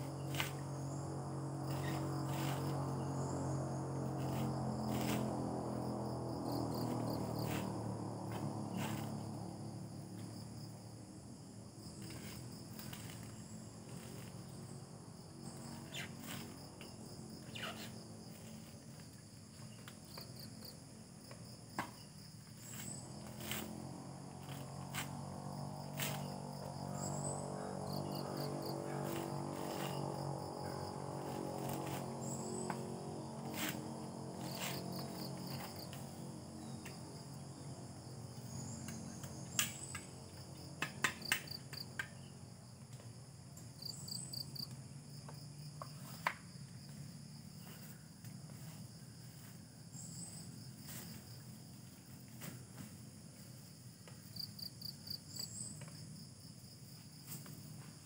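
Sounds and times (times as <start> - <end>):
crickets and insects chorus: 0.0 - 58.0.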